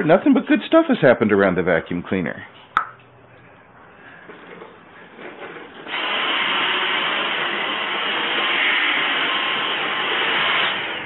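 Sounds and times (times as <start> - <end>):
vacuum cleaner running: 5.8 - 11.0.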